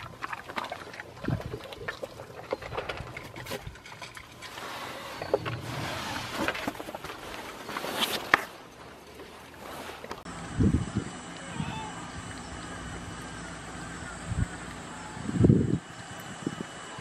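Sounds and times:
dog crunching dry kibble: 0:00.0 - 0:04.6.

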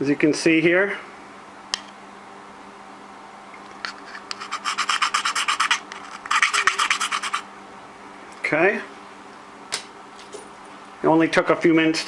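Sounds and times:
hand file scraping plastic: 0:03.9 - 0:07.4.

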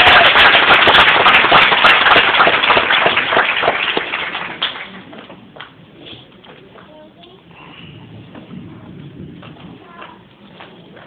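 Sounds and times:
audience applauding: 0:00.0 - 0:05.3.

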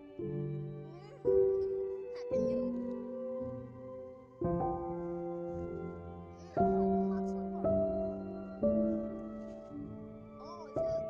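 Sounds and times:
soft sustained background music: 0:00.0 - 0:11.0.

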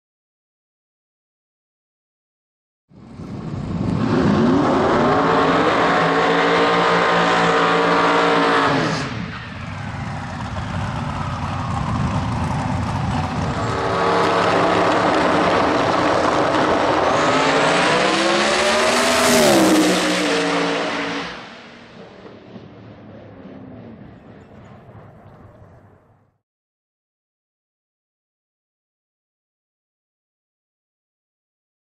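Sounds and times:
drag car engine revving: 0:03.3 - 0:24.8.

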